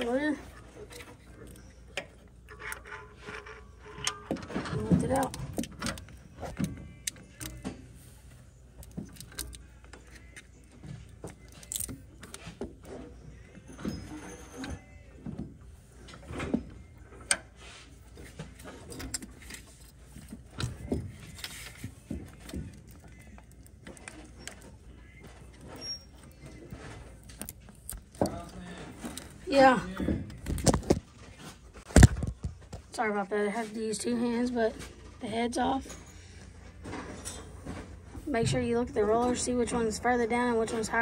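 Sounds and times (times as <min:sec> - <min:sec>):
metallic clinks and scrapes: 0:00.0 - 0:14.9, 0:34.8 - 0:37.9.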